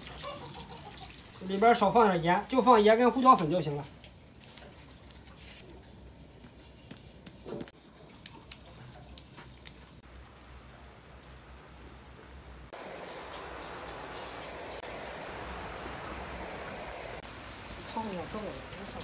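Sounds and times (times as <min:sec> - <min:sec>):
rain hiss: 0:00.0 - 0:04.6, 0:08.5 - 0:19.0.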